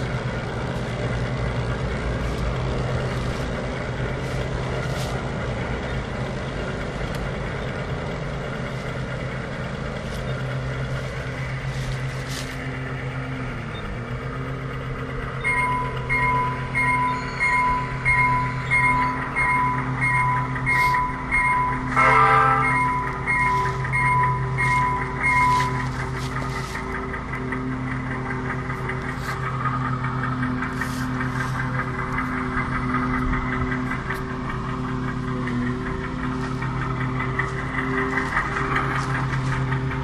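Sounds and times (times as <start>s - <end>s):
model train motor humming: 0.0s - 40.0s
bell dinging: 15.1s - 40.0s.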